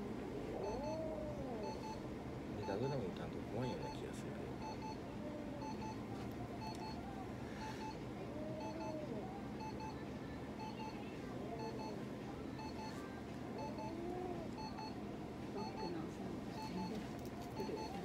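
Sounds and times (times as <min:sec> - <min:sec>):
cat meowing: 0:00.5 - 0:02.0.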